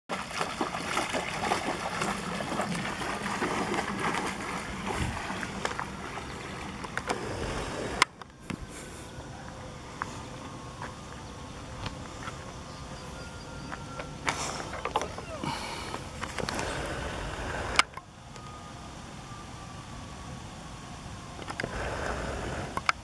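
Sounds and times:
water splashing and sloshing: 0.1 - 9.2.

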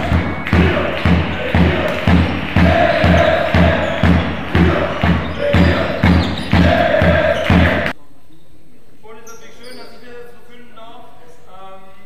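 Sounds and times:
kick drum beat: 0.0 - 7.9.

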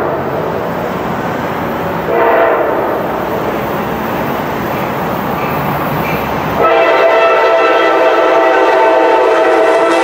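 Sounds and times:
train rumble: 0.0 - 10.0
train horn blast: 2.1 - 3.0, 6.6 - 10.0.

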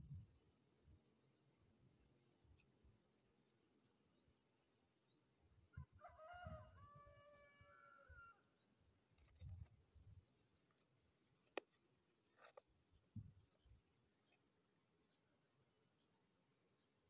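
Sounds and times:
faint rooster crowing: 5.7 - 8.5.

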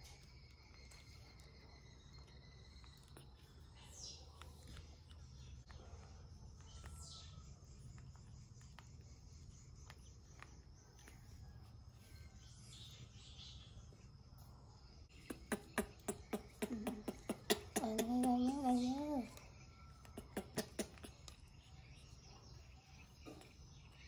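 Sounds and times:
wet smacking clicks: 15.2 - 18.6, 19.4 - 21.4
baby monkey sucking bottle: 15.2 - 19.4, 20.0 - 21.4
baby monkey whimpering: 15.7 - 19.4.

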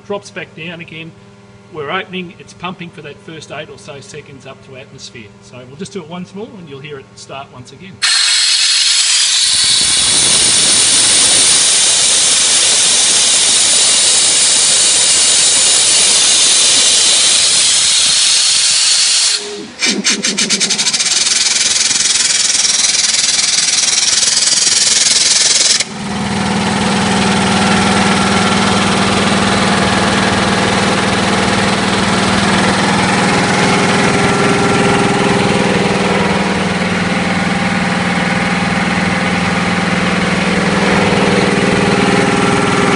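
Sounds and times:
air compressor humming: 7.9 - 42.9
compressed air hissing: 8.0 - 26.0.

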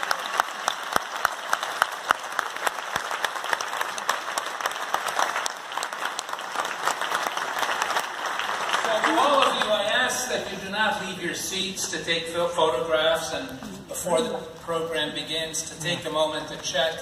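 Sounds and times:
audience applauding: 0.0 - 10.3.

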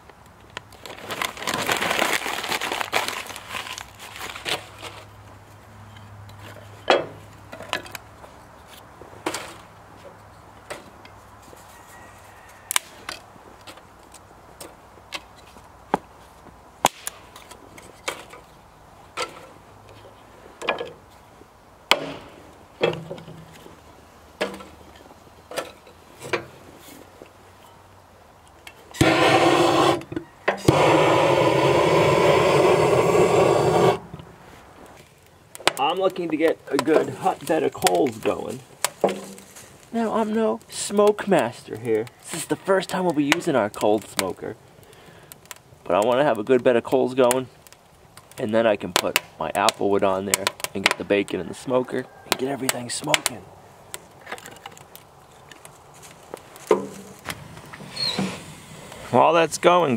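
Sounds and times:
kindling sticks clicking and clunking: 3.7 - 11.8, 12.5 - 21.3, 21.9 - 30.8, 34.1 - 59.1
propane torch hissing: 28.9 - 34.1, 57.3 - 59.1.

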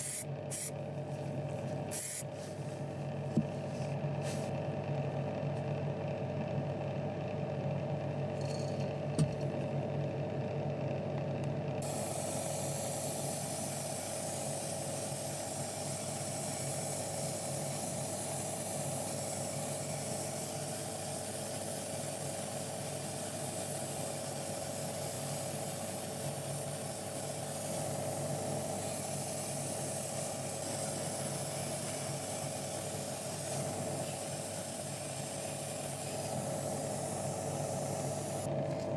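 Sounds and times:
airy spray hiss: 11.8 - 38.5.

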